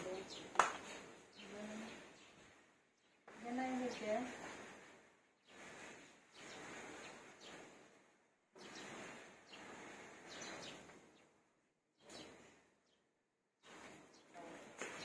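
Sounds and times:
outdoor background noise: 0.0 - 15.0
faint bird chirps: 8.6 - 11.3.

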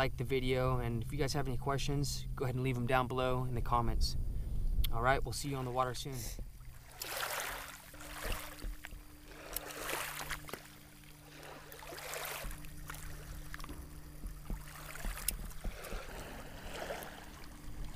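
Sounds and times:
faint low hum: 0.0 - 17.9
lake water lapping: 5.4 - 17.9.

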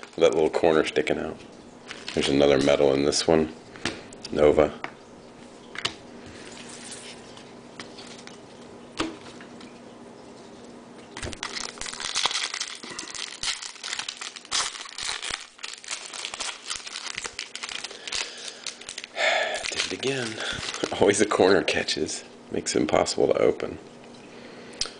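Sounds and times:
foil wrapper crinkling and tearing: 0.0 - 0.8, 1.8 - 2.9, 6.6 - 8.4, 11.2 - 21.8.

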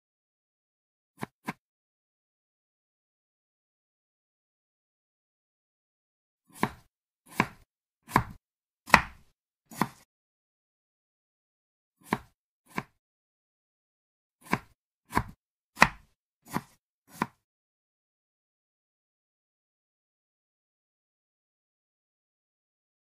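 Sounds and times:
knife cutting on cutting board: 1.2 - 1.6, 6.5 - 10.1, 12.0 - 13.0, 14.4 - 17.4.

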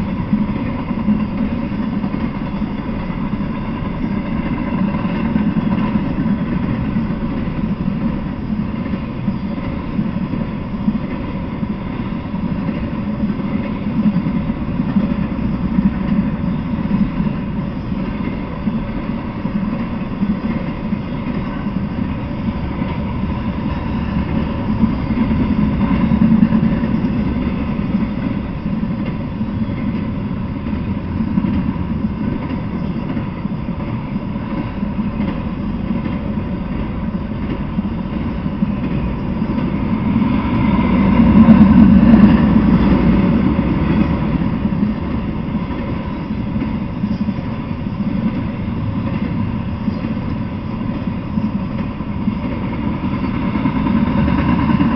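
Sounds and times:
freight train wheels rumbling: 0.0 - 54.9.

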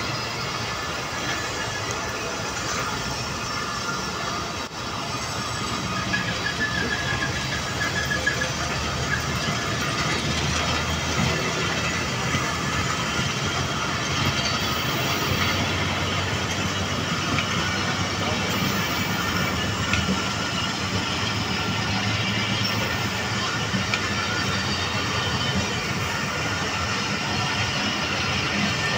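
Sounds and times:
train wheels on rails: 0.0 - 28.9.

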